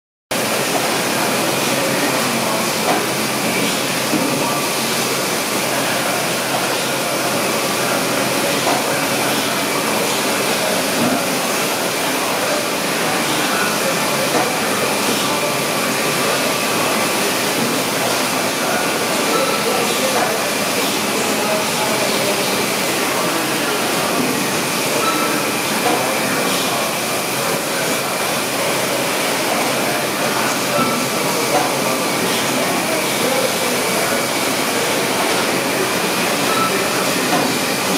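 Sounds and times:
packaging machinery running: 0.4s - 37.9s
faint high machine whine: 24.9s - 26.8s, 35.8s - 37.9s.

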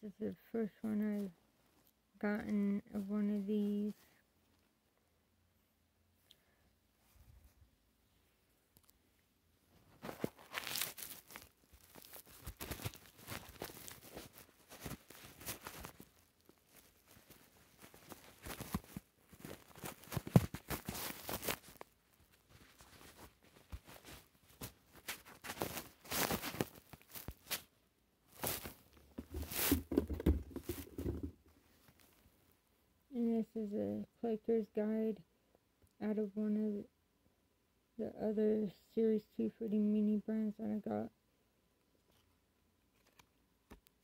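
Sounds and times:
packaging crinkling and tearing: 10.0s - 27.7s, 28.4s - 31.3s.

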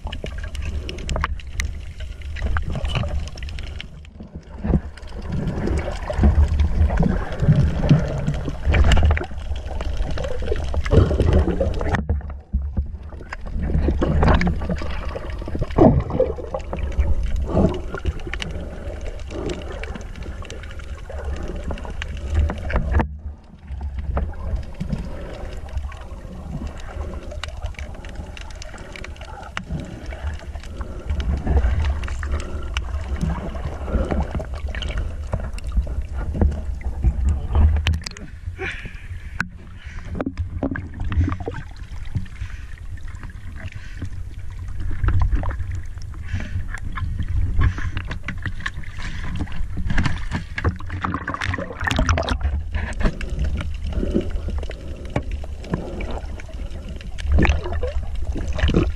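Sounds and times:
low underwater rumble: 0.0s - 58.9s
water rushing and gurgling: 0.0s - 58.9s.

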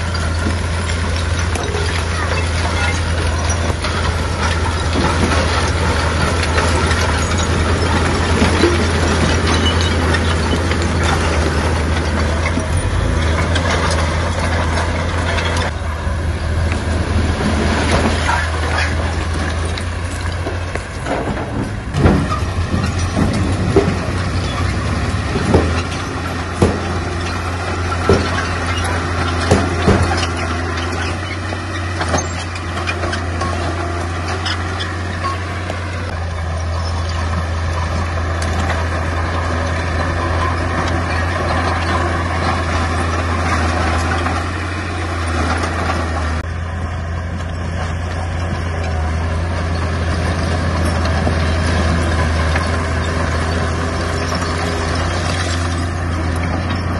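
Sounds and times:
diesel engine running under load: 0.0s - 56.9s.

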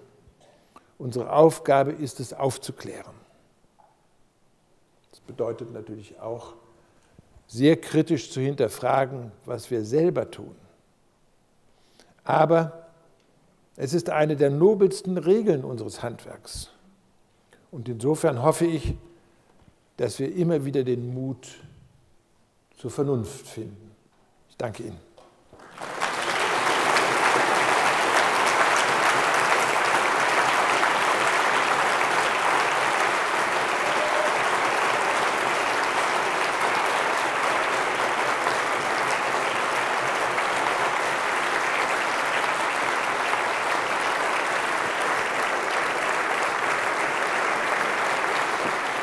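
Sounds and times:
large audience applauding: 25.5s - 49.0s.

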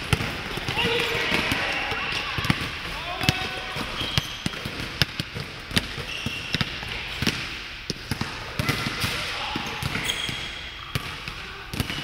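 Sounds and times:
sneaker squeaks: 3.2s - 5.1s, 5.8s - 7.3s, 8.6s - 11.1s.

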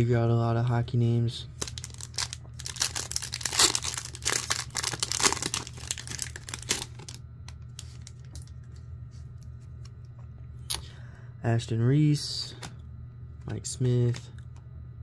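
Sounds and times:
foil wrapper crinkling and tearing: 1.6s - 8.5s.

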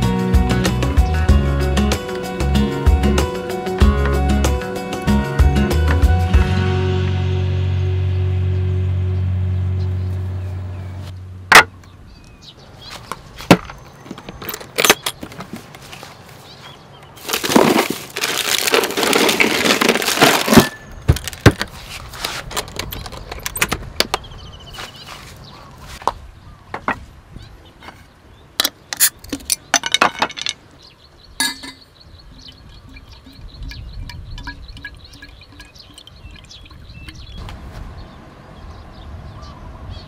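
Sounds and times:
rattling and rustling: 17.2s - 24.1s
glassy clinks: 31.4s - 37.3s.

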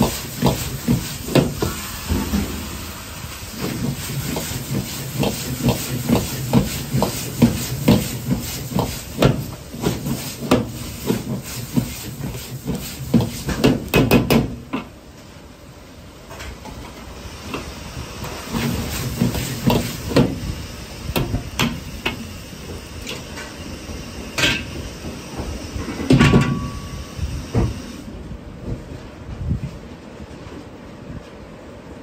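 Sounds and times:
wok sizzling: 0.0s - 14.6s, 17.2s - 23.1s.

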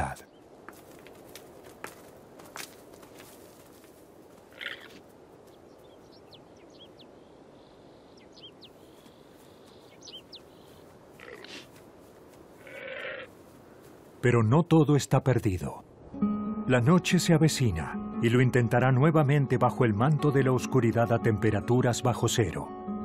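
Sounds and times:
shrill bleating alarm call: 12.6s - 13.3s.

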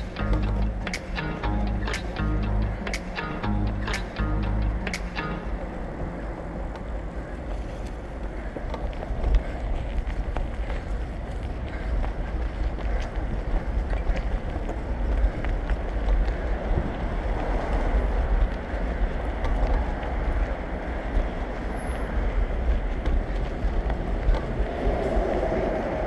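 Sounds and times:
wind rumbling on microphone: 5.6s - 26.0s.

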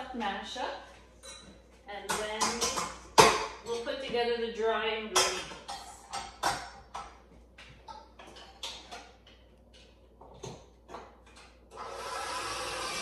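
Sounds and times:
mixer motor whirring: 11.7s - 13.0s.

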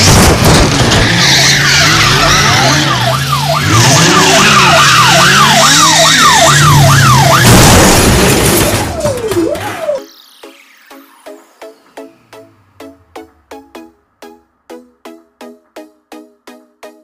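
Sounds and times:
tyre screech: 0.7s - 3.0s
police siren yelping: 0.8s - 10.1s.

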